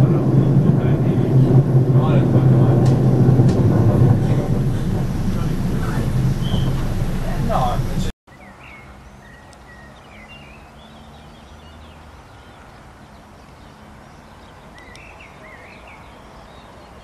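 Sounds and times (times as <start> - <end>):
low hum: 0.0 - 8.1
small birds chirping: 5.4 - 17.0.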